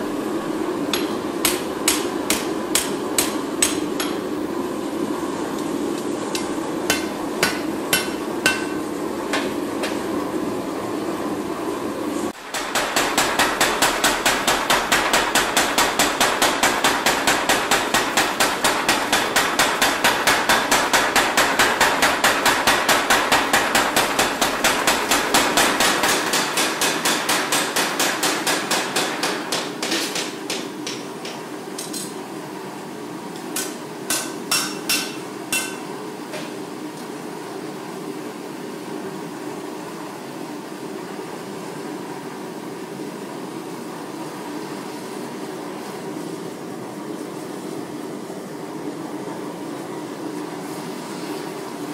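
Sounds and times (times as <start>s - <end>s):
steady hum: 0.0s - 51.9s
power hammer pounding: 12.4s - 31.0s.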